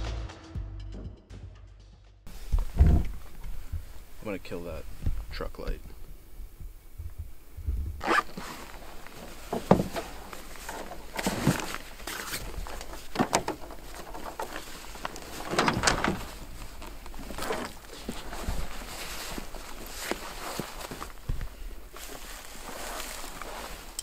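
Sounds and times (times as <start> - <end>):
footsteps crunching: 8.0 - 24.0.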